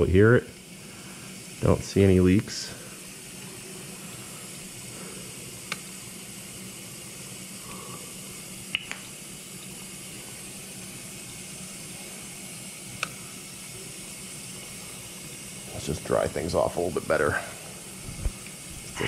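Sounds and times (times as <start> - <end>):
dishwasher filling with water: 8.7 - 19.0.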